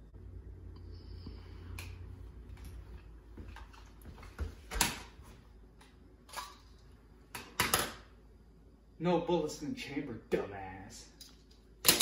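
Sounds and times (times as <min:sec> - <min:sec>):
footsteps on tile floor: 0:02.4 - 0:05.4.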